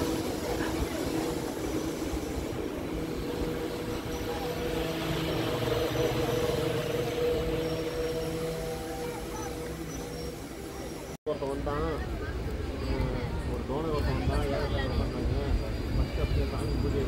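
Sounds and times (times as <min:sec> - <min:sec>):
machine hum: 0:00.0 - 0:11.2
train rumbling: 0:00.0 - 0:17.0.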